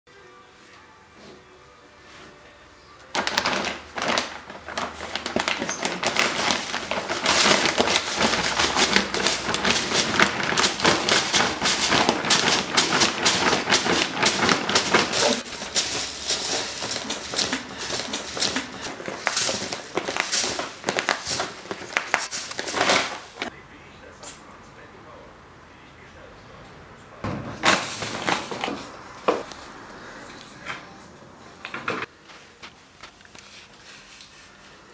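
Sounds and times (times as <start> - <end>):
plastic sack crinkling: 3.1 - 23.5, 27.6 - 29.7
cat scratching in litter: 3.2 - 23.5, 27.6 - 29.6
litter granules rattling: 3.2 - 23.5, 27.6 - 29.0.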